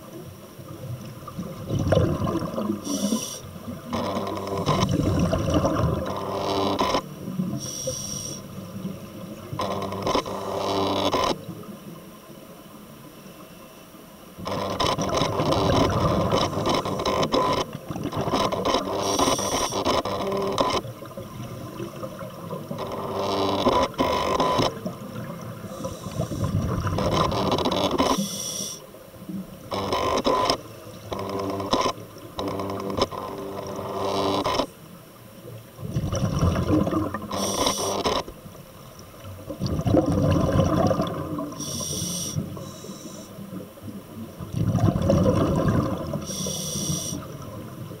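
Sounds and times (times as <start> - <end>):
regulator hissing inhalations: 2.8 - 3.5, 7.6 - 8.4, 25.7 - 26.6, 28.2 - 28.8, 41.6 - 43.4, 46.3 - 47.3
bubbling exhalations: 39.6 - 41.5, 44.5 - 46.3.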